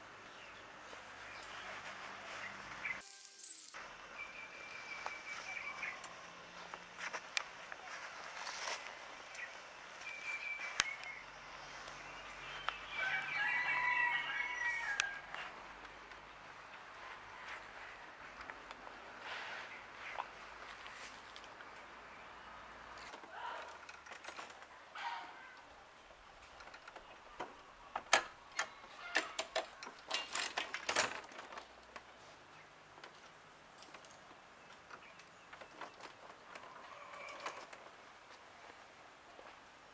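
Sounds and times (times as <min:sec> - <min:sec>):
rooster crowing: 0:12.9 - 0:15.5, 0:36.6 - 0:37.7
sharp clicks and metallic knocks: 0:26.4 - 0:32.1.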